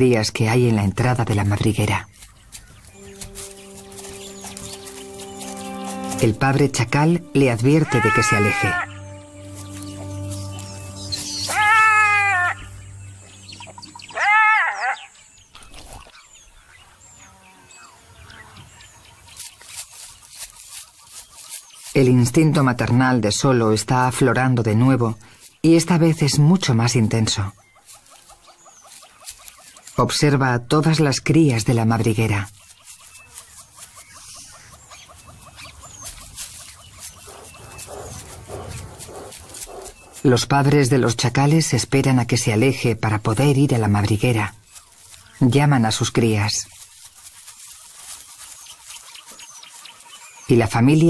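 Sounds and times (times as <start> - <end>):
high bird chirps: 2.1 - 21.9, 32.6 - 40.3
wild canid yelping: 7.8 - 9.0, 11.4 - 12.7, 14.1 - 15.1, 35.1 - 40.3
dog panting: 35.9 - 40.3.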